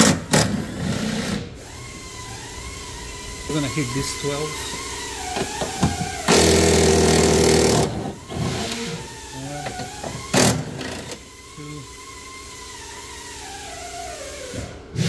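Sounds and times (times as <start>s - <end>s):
cordless power tool running: 0.0s - 12.0s.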